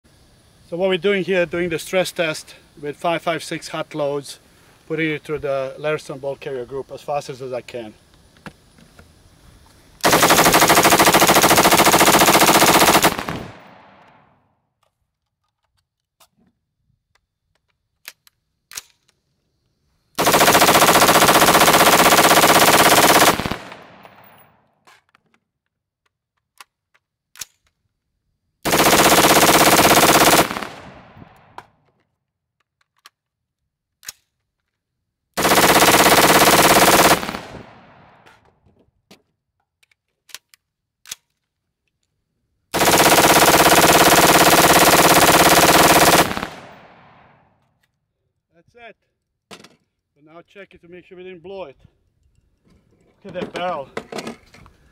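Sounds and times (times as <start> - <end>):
rifle rapid fire: 10.0 - 14.3, 20.2 - 24.3, 28.6 - 31.6, 35.4 - 38.2, 42.8 - 47.4.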